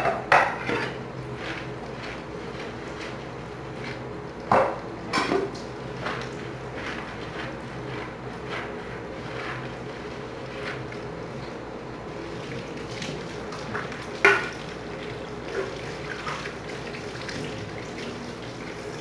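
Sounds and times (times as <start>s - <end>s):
dishes clattering: 0.0s - 1.0s, 4.5s - 5.6s
dishes clinking in sink: 0.0s - 1.0s, 4.5s - 5.6s
sponge scrubbing: 0.6s - 4.1s, 5.9s - 11.2s.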